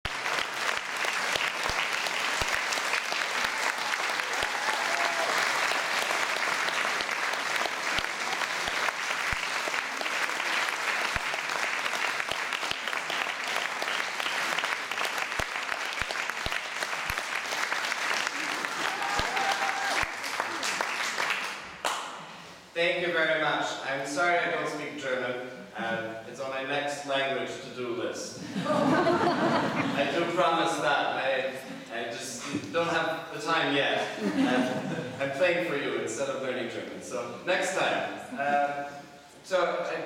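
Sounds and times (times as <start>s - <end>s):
audience applauding: 0.0s - 22.2s.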